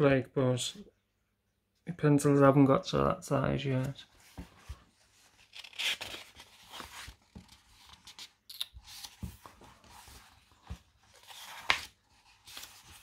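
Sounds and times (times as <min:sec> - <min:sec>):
magazine pages turning: 0:03.8 - 0:13.0.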